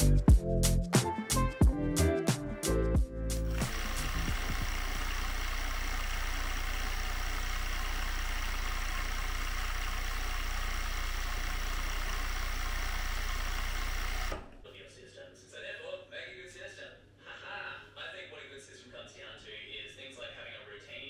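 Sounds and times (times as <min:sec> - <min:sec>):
overlocker sewing machine running: 0:03.5 - 0:14.6.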